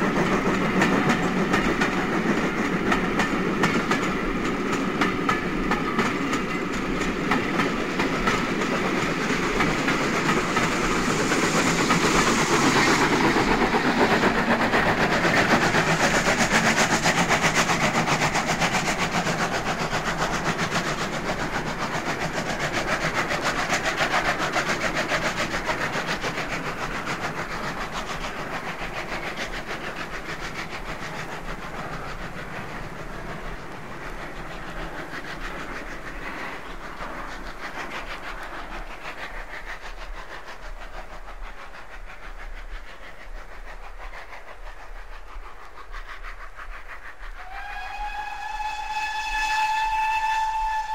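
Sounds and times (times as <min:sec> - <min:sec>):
steam locomotive exhaust beats: 0:00.0 - 0:50.9.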